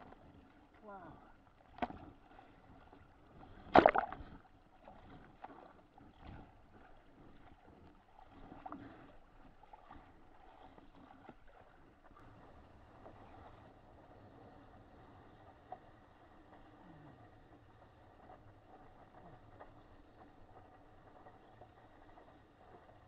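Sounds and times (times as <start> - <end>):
choppy water slapping a hull: 0.0 - 23.0
small splashes and knocks: 1.7 - 2.1, 3.6 - 4.3.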